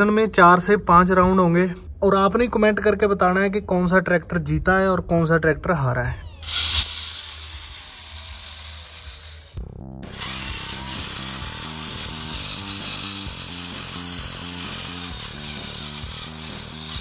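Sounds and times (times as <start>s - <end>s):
electric motor whirring: 6.1s - 17.0s.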